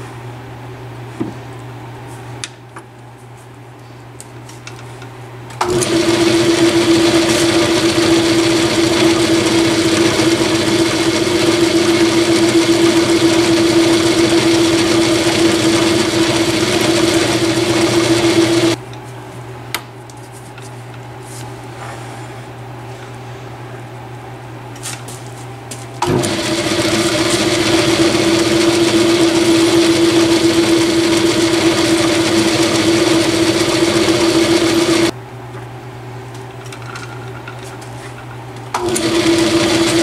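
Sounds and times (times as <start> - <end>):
metal lathe humming: 5.6 - 18.8, 26.0 - 35.1, 38.8 - 40.0.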